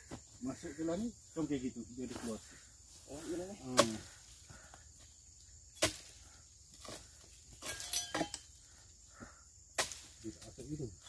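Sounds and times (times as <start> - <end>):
chisel knocking into palm frond: 3.7 - 4.0.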